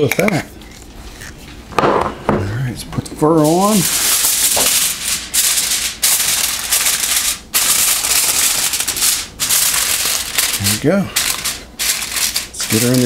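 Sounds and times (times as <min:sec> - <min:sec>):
aluminium foil crinkling: 0:03.4 - 0:13.0.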